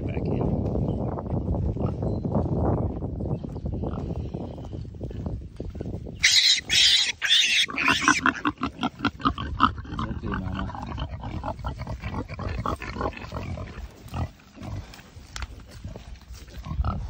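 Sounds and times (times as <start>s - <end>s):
piglets squealing: 6.2s - 13.2s
sow grunting: 6.2s - 13.8s.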